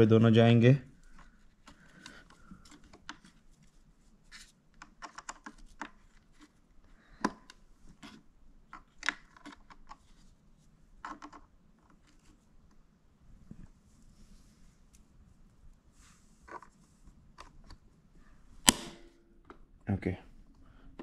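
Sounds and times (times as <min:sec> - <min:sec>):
plastic clicks and scrapes: 0:04.3 - 0:06.6, 0:07.2 - 0:10.3, 0:11.0 - 0:12.4.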